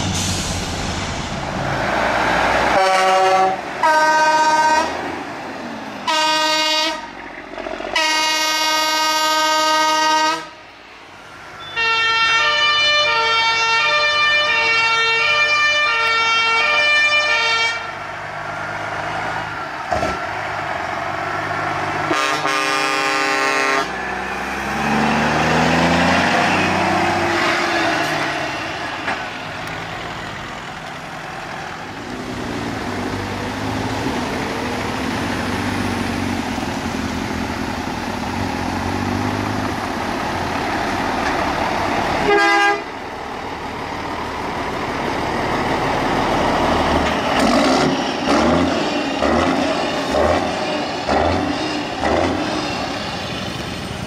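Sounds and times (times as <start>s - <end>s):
truck diesel engine passing: 0.0s - 54.0s
truck air horn blasts: 2.7s - 5.0s, 6.0s - 7.2s, 7.9s - 10.6s, 11.6s - 18.0s, 22.1s - 24.0s, 42.2s - 42.9s
musical horn playing tune: 2.8s - 4.9s, 6.1s - 7.1s, 8.0s - 10.6s, 11.6s - 17.9s, 22.1s - 24.0s, 42.2s - 42.9s.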